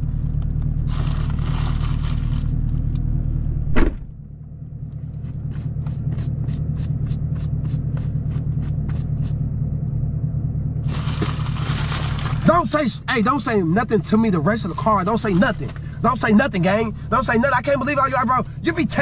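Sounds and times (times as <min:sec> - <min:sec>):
low hum in car cabin: 0:00.0 - 0:19.0
car door shutting: 0:03.6 - 0:04.2.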